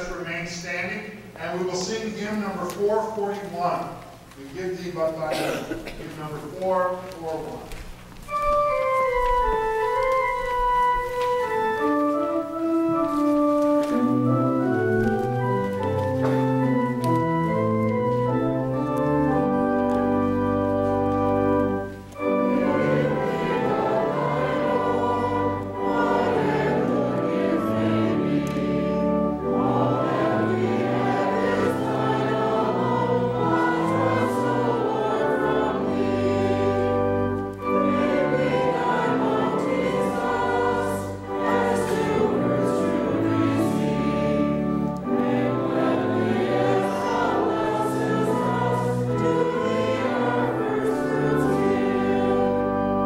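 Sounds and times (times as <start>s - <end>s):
organ playing chords: 0.0s - 53.0s
choir singing: 13.9s - 53.0s.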